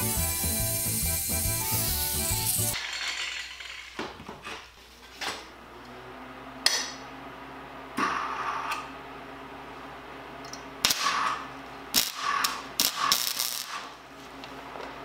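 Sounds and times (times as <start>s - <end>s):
angle grinder cutting: 0.0s - 4.1s.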